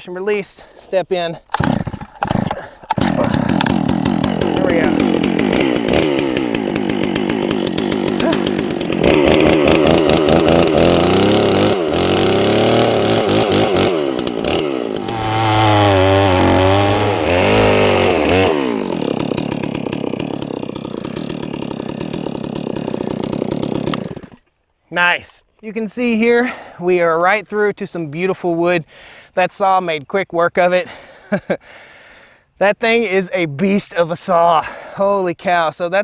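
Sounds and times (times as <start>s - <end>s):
chainsaw cutting log: 1.4s - 24.6s.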